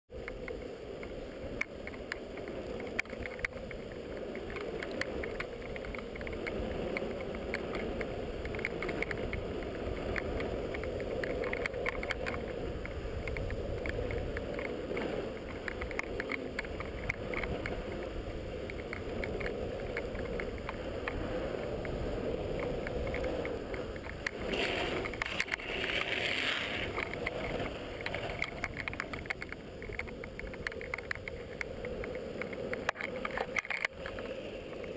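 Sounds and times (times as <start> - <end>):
longboard wheels rolling on asphalt: 0.1 - 34.9
wind on microphone: 0.1 - 34.9.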